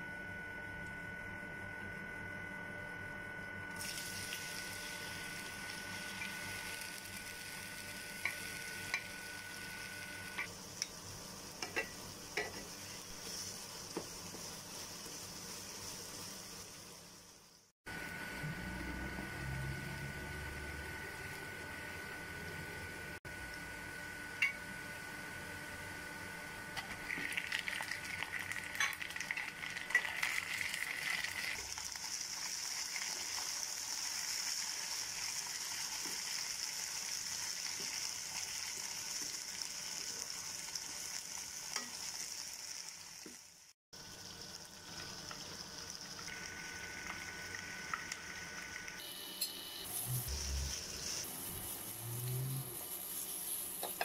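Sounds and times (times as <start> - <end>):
onions and chicken sizzling in oil: 3.7 - 54.0.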